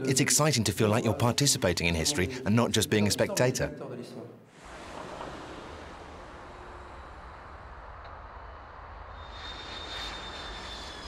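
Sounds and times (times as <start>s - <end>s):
high jet engine whine: 4.6s - 11.0s
road traffic: 4.6s - 11.0s
jet aircraft engines rumbling: 4.7s - 11.0s.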